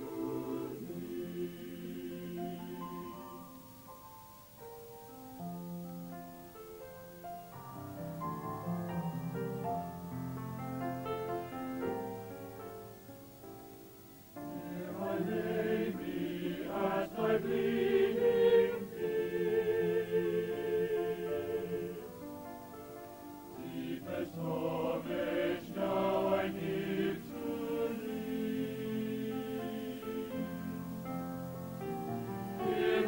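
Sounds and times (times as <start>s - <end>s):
choir singing a hymn: 0.0s - 4.1s, 14.3s - 33.0s
piano accompaniment: 0.0s - 33.0s.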